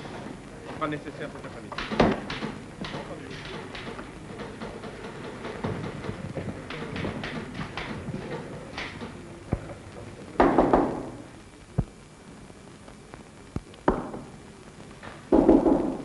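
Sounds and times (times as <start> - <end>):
hand stamp thudding on papers: 1.8 - 9.7.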